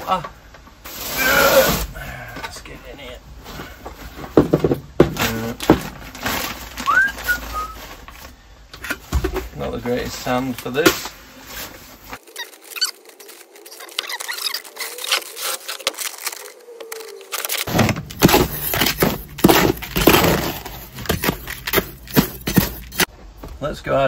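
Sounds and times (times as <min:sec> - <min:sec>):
dry mortar mix scraping and crunching: 0:05.0 - 0:08.0, 0:08.9 - 0:23.1.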